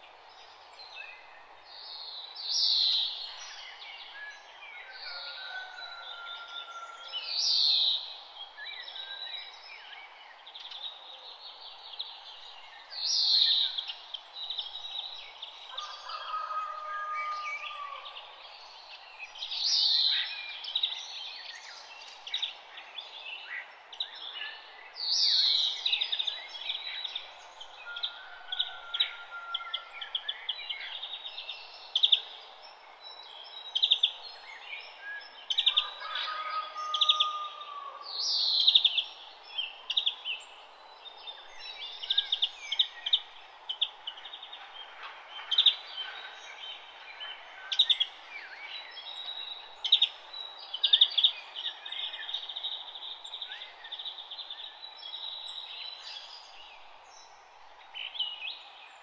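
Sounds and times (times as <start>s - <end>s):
birds chirping and trilling: 2.2s - 59.0s
steady background hiss: 37.6s - 59.0s.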